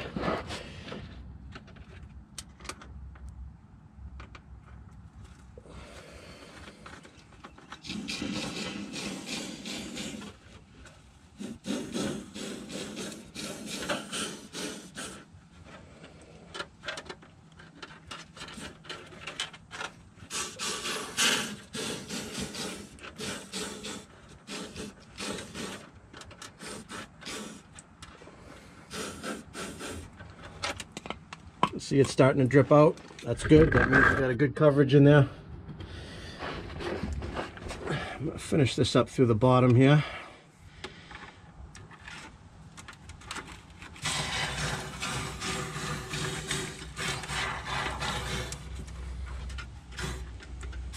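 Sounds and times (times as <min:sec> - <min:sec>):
plastic hose scraping metal: 0:05.8 - 0:38.6, 0:40.9 - 0:50.9
aerosol can spraying: 0:07.8 - 0:10.4, 0:11.4 - 0:15.2, 0:20.3 - 0:25.8.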